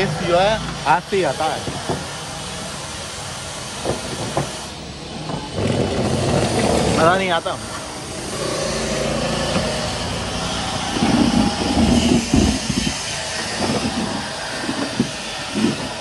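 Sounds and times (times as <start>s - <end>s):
vehicle engine running: 5.5s - 16.0s
low thumps: 9.4s - 16.0s.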